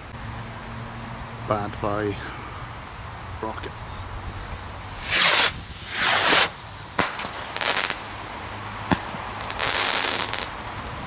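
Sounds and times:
firework rockets whooshing: 4.2 - 11.0
firework crackling: 4.3 - 11.0
firework bangs: 4.9 - 11.0.

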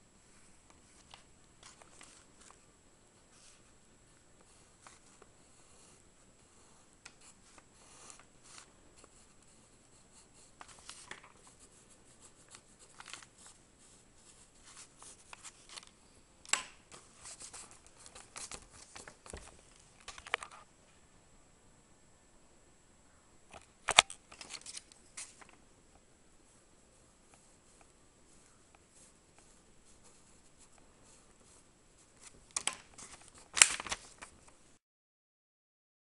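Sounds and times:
pencil scratching on paper: 11.4 - 15.6.

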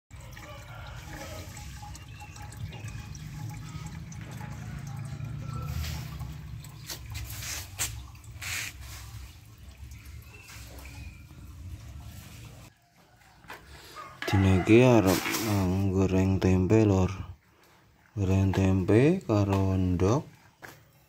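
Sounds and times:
tap water filling a metal kettle: 0.1 - 12.7.

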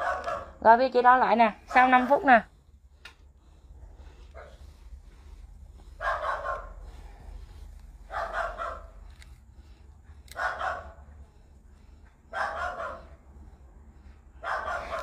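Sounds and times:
dog barking: 0.0 - 0.7, 6.0 - 7.0, 8.1 - 9.0, 10.3 - 11.0, 12.3 - 13.2, 14.4 - 15.0
low steady hum: 0.0 - 15.0.

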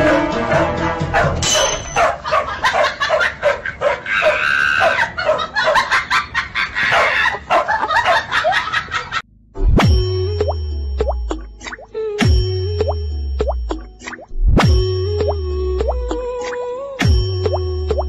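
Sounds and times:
dog barking high yips: 1.2 - 5.8.

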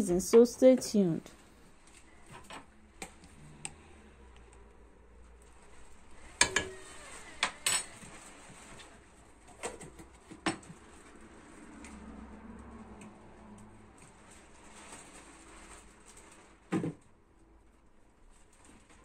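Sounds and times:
utensils clinking against a pot: 6.4 - 6.8.

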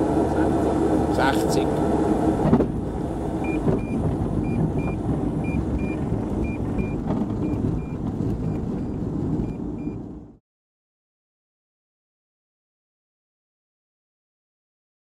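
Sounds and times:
aircraft engine running: 0.0 - 10.4.

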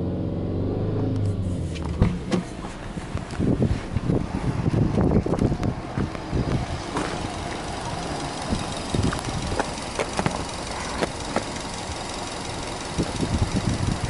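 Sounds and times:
car engine idling: 1.2 - 14.0
light engine ticks: 7.0 - 14.0.

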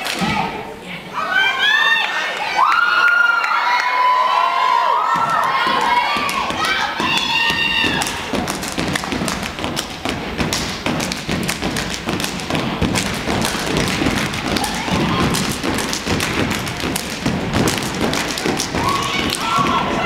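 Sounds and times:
sharp claps: 5.1 - 20.0
stomping on stage: 5.2 - 20.0.

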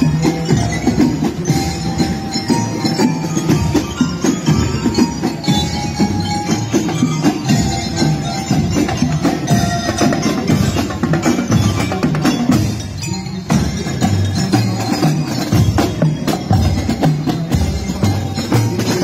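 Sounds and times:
bell lyres playing a tune: 0.0 - 19.0
marching drums: 0.0 - 19.0.

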